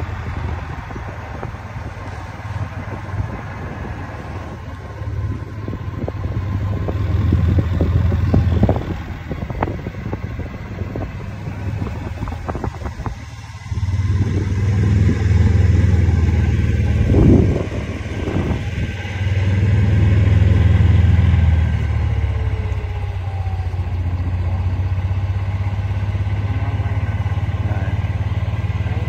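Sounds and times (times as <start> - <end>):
wind buffeting microphone: 0.0 - 25.8.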